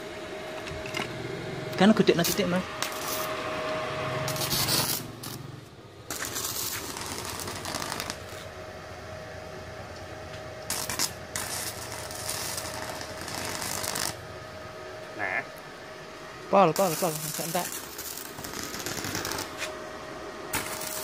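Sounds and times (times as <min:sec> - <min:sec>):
welding arc crackling: 0:01.7 - 0:03.3, 0:04.2 - 0:08.5, 0:10.6 - 0:14.2, 0:16.5 - 0:19.8, 0:20.5 - 0:21.0.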